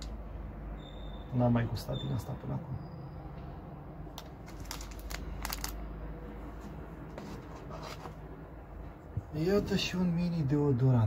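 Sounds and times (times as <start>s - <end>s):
packaging rustles and clicks: 4.2s - 5.8s.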